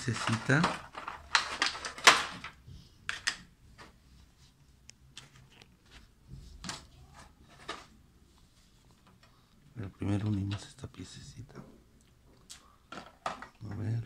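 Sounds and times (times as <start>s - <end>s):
plastic wrapping crinkling: 0.0s - 2.5s.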